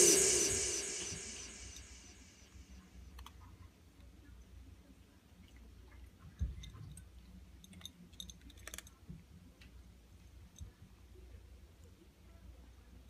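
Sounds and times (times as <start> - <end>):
cats chewing and clicking: 5.4 - 11.0.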